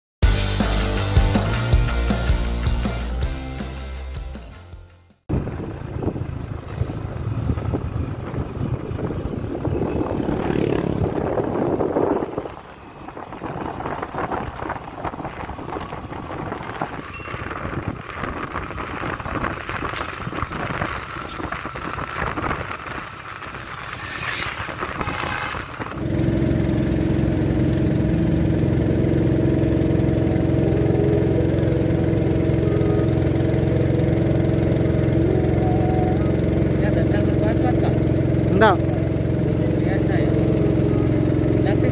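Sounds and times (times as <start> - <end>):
wind on microphone: 5.3 - 26.1
scooter engine running: 5.3 - 41.9
boat engine drone: 16.6 - 41.9.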